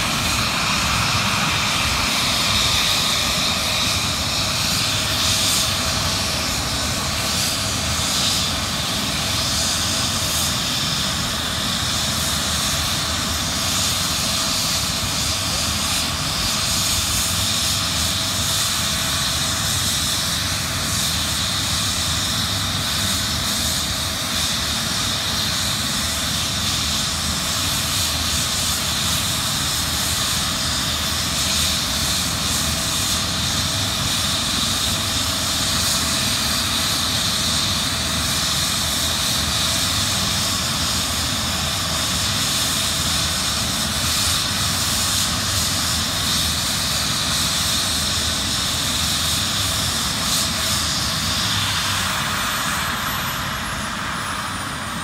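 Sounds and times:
helicopter rotor noise: 0.0s - 55.0s
helicopter turbine whine: 0.0s - 55.0s.

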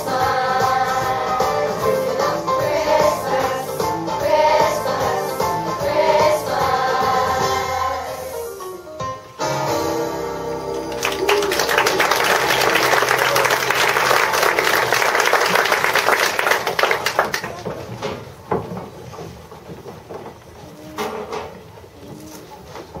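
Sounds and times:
children's choir singing: 0.0s - 8.6s
audience applauding: 10.8s - 17.7s.

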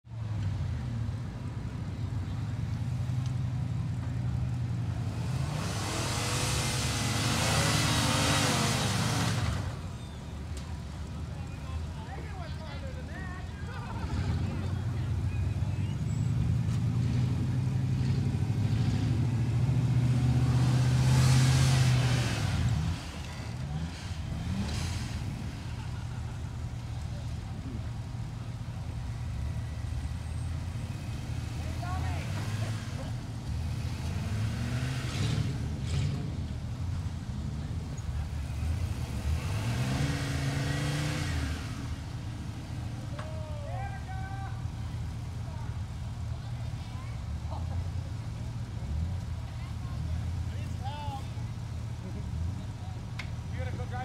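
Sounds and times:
tyres churning dirt: 0.1s - 54.0s
buggy engine idling low: 9.0s - 22.0s, 22.6s - 33.7s, 41.8s - 54.0s.

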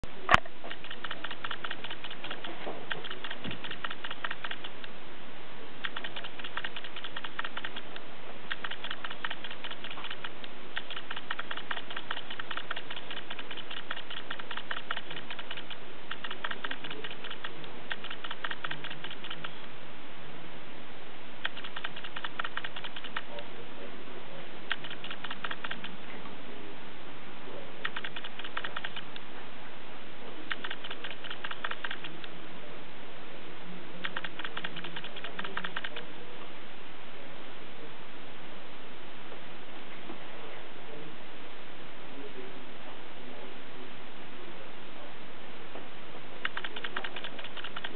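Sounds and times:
steady hiss: 0.1s - 47.9s
rapid light clicking: 0.3s - 5.0s, 5.8s - 19.7s, 21.4s - 23.4s, 24.7s - 26.0s, 27.8s - 29.3s, 30.5s - 32.4s, 34.0s - 36.1s, 46.4s - 47.9s
sharp click: 0.3s - 5.0s, 5.8s - 19.7s, 21.4s - 23.4s, 24.7s - 26.0s, 27.8s - 29.3s, 30.5s - 32.4s, 34.0s - 36.0s, 46.4s - 47.9s.

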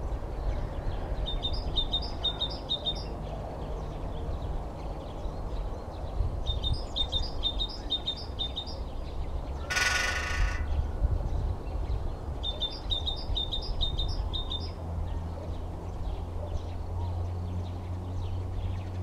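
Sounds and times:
bird singing high quick notes: 9.6s - 10.7s
woodpecker drumming on pole: 9.6s - 10.7s.

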